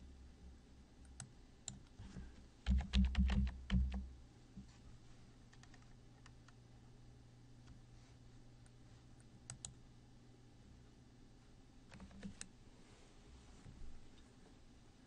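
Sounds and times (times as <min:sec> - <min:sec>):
keyboard typing: 0:02.6 - 0:04.0, 0:05.5 - 0:06.6, 0:11.9 - 0:12.5.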